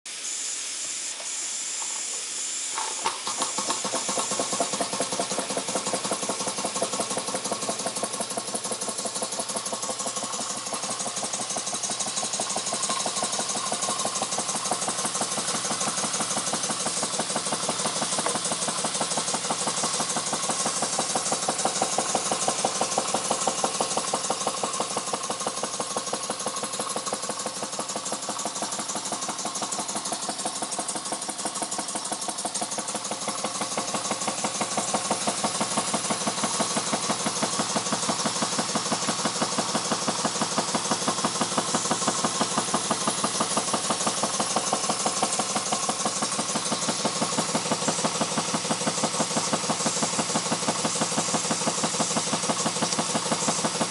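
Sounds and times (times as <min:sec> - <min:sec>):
steam engine exhaust beats: 0:00.1 - 0:53.9
steam hissing: 0:00.1 - 0:53.9.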